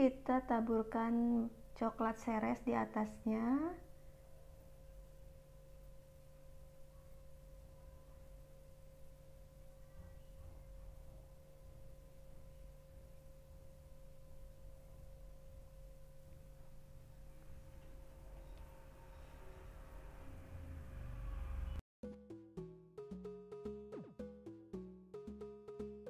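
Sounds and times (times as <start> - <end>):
faint high-pitched tone: 6.6 - 12.8, 17.6 - 21.8
low rumble: 16.4 - 21.8.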